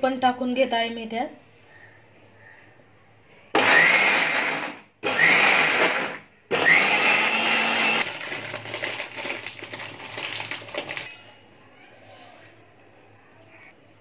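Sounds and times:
mixer grinder whining: 3.6s - 11.1s.

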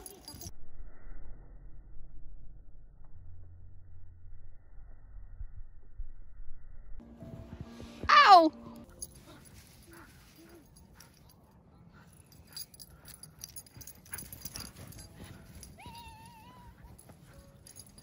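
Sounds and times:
dog whining: 15.6s - 17.5s.

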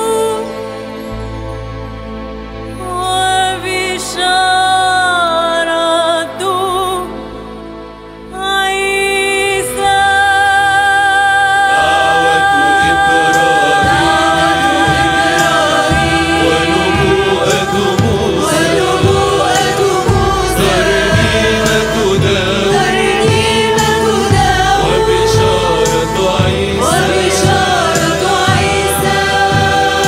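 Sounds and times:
voices singing ornamented melody: 8.4s - 30.0s
steady low drum beat: 12.8s - 30.0s.

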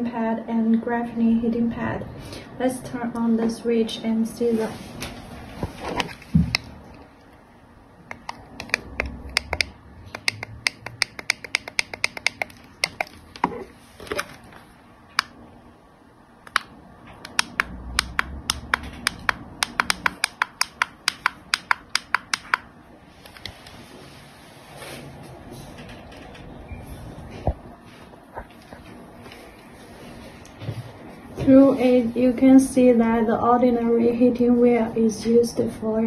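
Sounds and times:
plastic buttons clicking: 8.1s - 14.3s, 16.5s - 22.7s.

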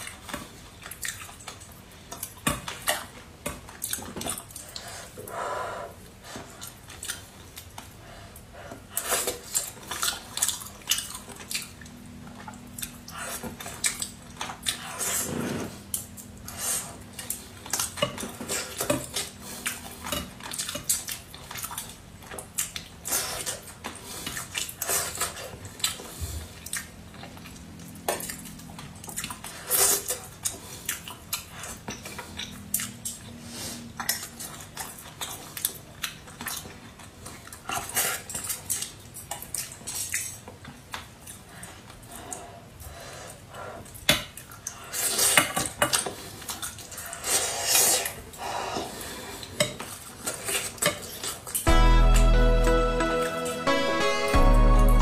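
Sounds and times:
mouth sounds of eating: 0.0s - 51.7s.

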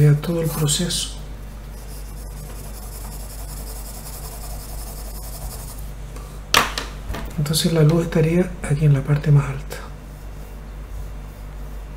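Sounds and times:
low steady hum: 0.0s - 11.9s
pencil scratching on paper: 1.7s - 5.8s.

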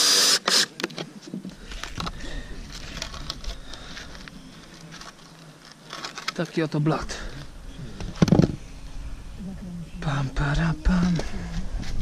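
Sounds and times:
power drill whining: 0.0s - 0.7s.

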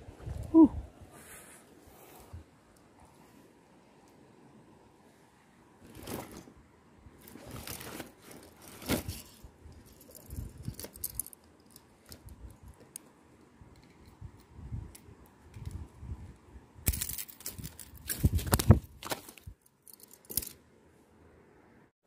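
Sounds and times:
rustling and scraping: 5.8s - 6.6s, 7.2s - 13.0s, 16.9s - 20.6s.

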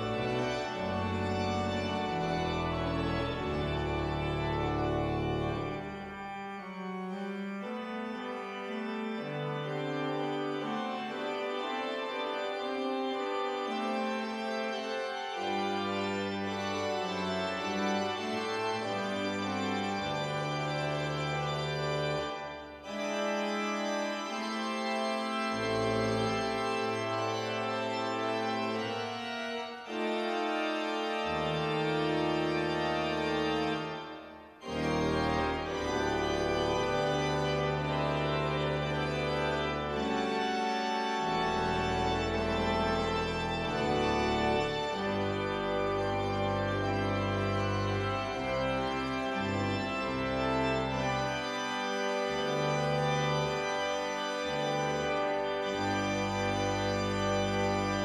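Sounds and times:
church organ playing: 0.0s - 58.0s.

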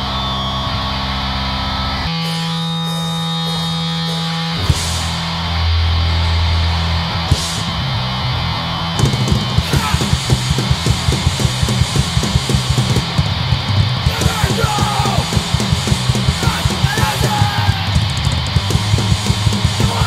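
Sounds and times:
bass guitar: 0.0s - 20.0s
distorted electric guitar: 0.0s - 20.0s
fast drum beat: 9.0s - 20.0s
person singing: 14.1s - 15.4s, 16.4s - 18.0s, 19.8s - 20.0s.

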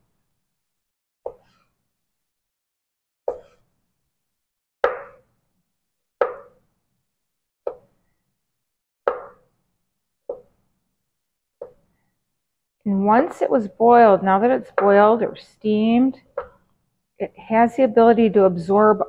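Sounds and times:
knife chopping on wooden board: 4.8s - 5.2s, 6.2s - 6.6s.

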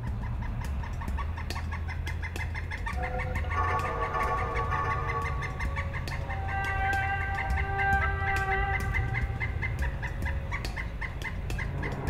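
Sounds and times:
held musical tones: 0.0s - 12.0s
woodpecker calling: 0.0s - 12.0s.

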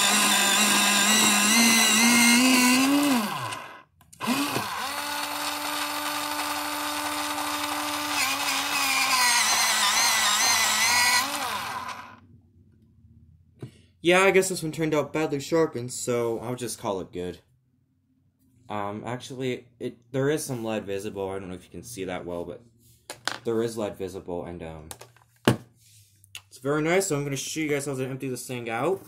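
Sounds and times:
electric pencil sharpener whirring: 0.0s - 12.2s.

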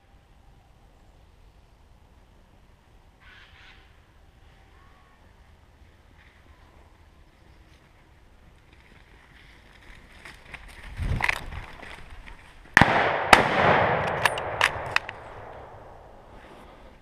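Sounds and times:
rifle shots echoing: 12.8s - 16.3s.

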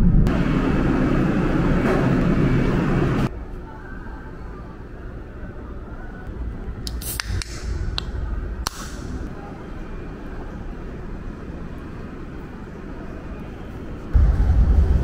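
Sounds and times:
steady low rumble: 0.0s - 3.3s, 6.2s - 12.6s, 14.1s - 15.0s.

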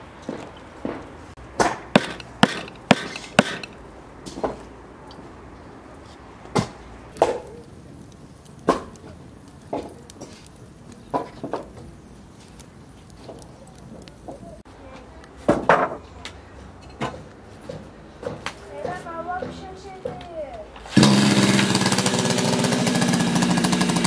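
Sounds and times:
axe splitting firewood: 0.2s - 4.7s, 6.4s - 14.4s, 17.0s - 24.0s
knocks and thuds: 1.6s - 3.8s.

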